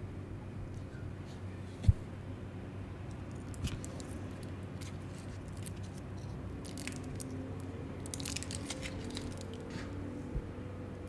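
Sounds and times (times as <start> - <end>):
wrapper crinkling: 3.4 - 7.4, 8.0 - 9.9.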